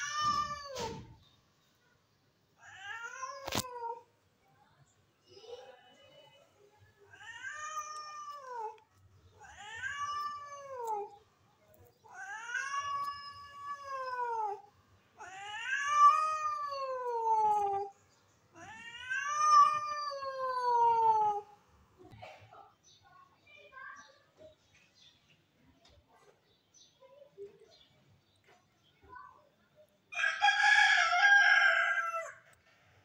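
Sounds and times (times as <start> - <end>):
cat meowing: 0.0 - 1.0, 9.4 - 11.1, 12.1 - 14.6, 15.2 - 17.9, 18.6 - 21.5.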